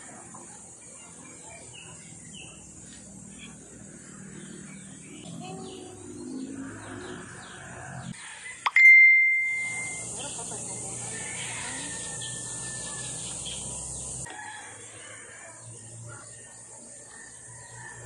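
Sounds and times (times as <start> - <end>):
birds chirping: 0.3 - 14.3
bright ding: 8.7 - 10.0
steady hiss: 9.4 - 14.3.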